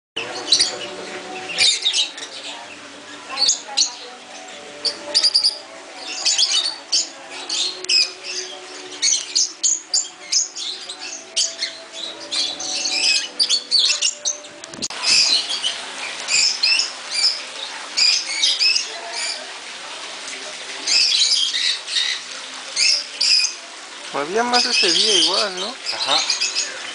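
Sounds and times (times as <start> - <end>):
parrots chattering: 24.6 - 26.9.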